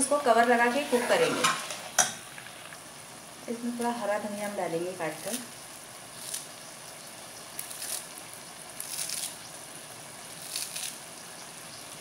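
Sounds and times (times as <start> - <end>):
food sizzling in oil: 0.0 - 12.0
steel spoon scraping: 0.3 - 2.2.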